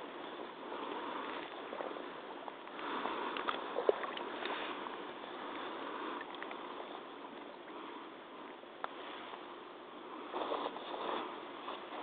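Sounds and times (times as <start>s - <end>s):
muddy water sloshing: 0.0s - 6.7s.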